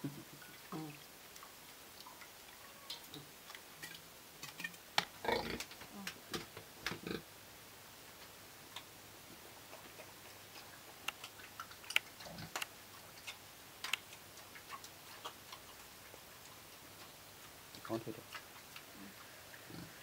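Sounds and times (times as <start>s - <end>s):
pig chewing food: 9.6s - 20.0s.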